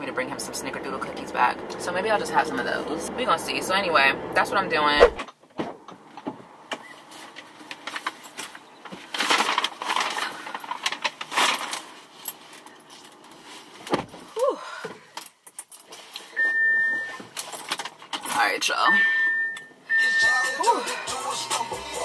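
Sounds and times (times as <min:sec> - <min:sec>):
bags rustling: 0:06.8 - 0:18.2
car electronic beep: 0:16.4 - 0:17.2, 0:18.8 - 0:20.8.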